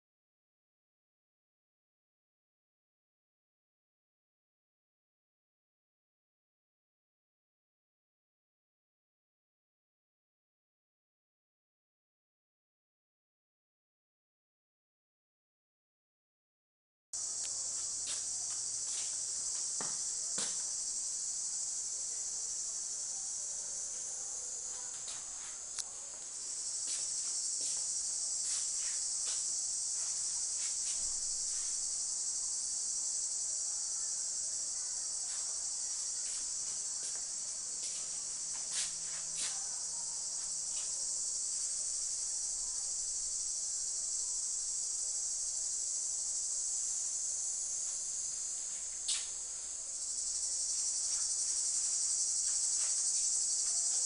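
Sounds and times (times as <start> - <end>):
high-pitched insect chorus: 17.2 - 54.0.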